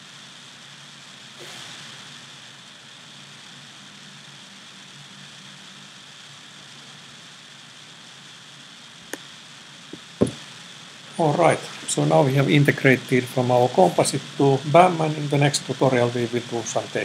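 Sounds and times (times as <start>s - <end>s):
open microphone hiss: 0.0s - 17.0s
loud thump: 10.2s - 10.4s.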